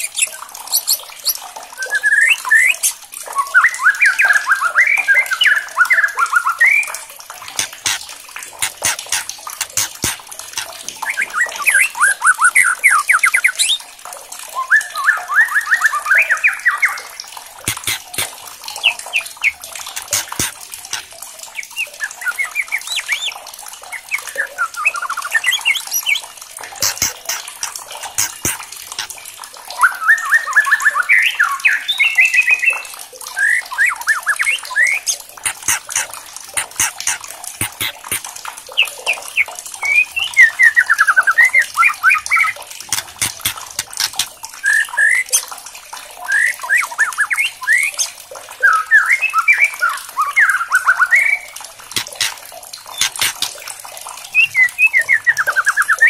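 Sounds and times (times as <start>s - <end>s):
bird rattling clicks: 7.5s - 10.8s, 20.0s - 21.1s, 26.8s - 29.1s, 35.4s - 38.2s, 42.9s - 44.3s, 52.0s - 52.4s, 53.0s - 53.6s
high thin bird notes: 26.8s - 29.1s.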